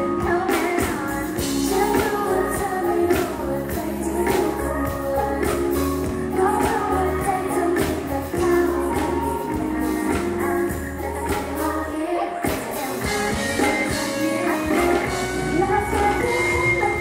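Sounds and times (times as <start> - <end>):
female vocals: 0.0 - 17.0.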